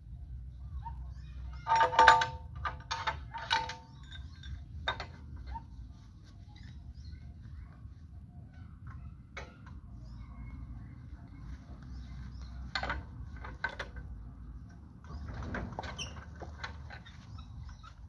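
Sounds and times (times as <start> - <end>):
clanks and knocks on tractor: 1.5 - 5.7, 8.8 - 9.8, 12.5 - 18.0.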